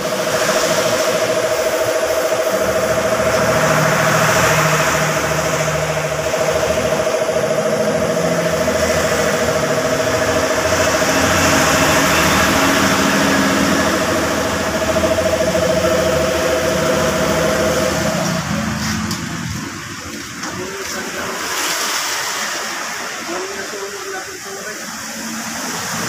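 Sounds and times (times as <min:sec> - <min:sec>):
machine motor droning hum: 0:00.0 - 0:26.0.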